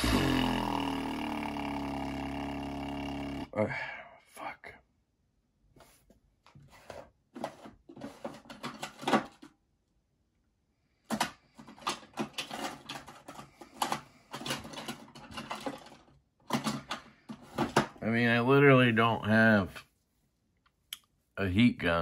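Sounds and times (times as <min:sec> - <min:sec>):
small tools clicking and rattling: 0:11.1 - 0:17.8.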